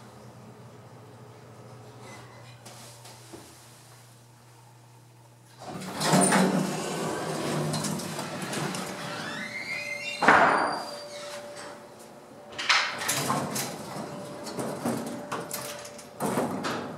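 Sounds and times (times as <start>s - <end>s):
elevator doors sliding: 5.6s - 16.9s
rising squeal: 9.0s - 11.8s.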